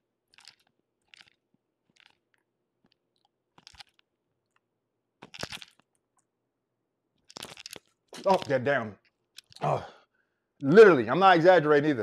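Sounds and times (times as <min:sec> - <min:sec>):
man gulping and mouth smacks: 0:00.3 - 0:06.3, 0:07.2 - 0:09.9.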